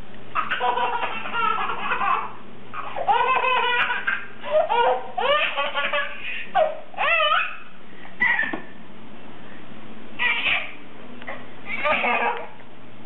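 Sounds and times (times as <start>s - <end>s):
baby laughing: 0.3s - 8.7s, 10.2s - 10.8s, 11.7s - 12.5s.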